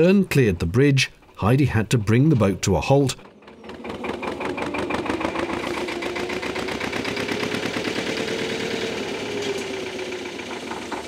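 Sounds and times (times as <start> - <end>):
diesel engine running: 2.8 - 11.0.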